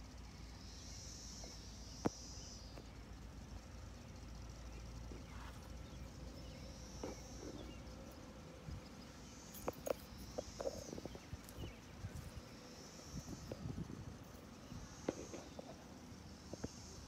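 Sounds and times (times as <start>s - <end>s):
insects buzzing: 0.0s - 17.0s.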